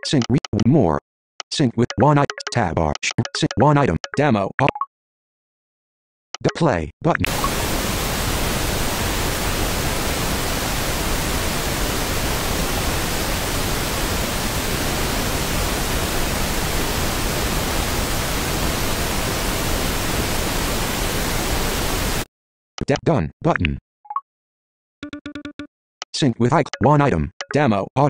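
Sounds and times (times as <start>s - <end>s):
white noise hiss: 7.3s - 22.2s.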